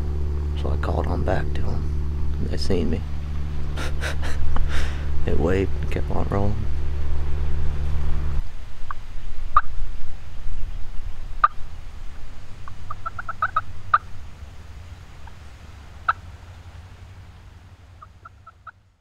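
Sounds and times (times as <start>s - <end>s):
low steady rumble: 0.0s - 19.0s
turkey yelps: 12.6s - 14.1s, 16.0s - 16.2s, 18.0s - 18.8s.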